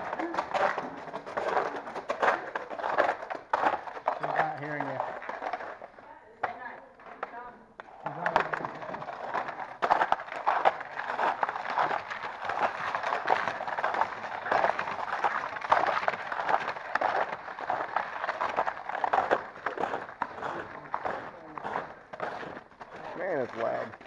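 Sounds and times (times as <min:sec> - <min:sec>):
footsteps crunching in snow: 0:08.2 - 0:24.0.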